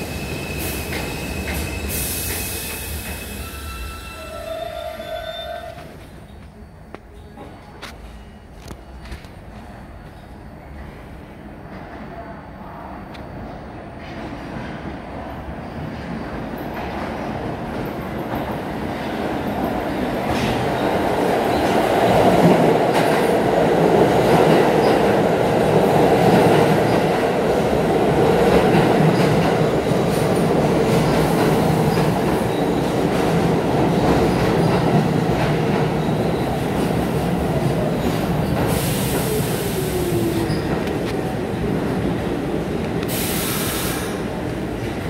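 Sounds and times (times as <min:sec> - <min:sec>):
falling whine of train: 0:00.0 - 0:45.0
subway train wheels rumbling: 0:00.0 - 0:45.0
short burst of hissing: 0:43.1 - 0:44.2.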